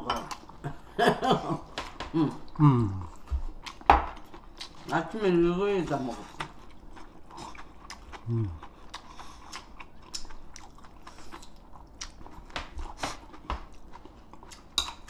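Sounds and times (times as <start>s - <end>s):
person chewing and biting: 2.4s - 4.9s, 6.3s - 15.0s.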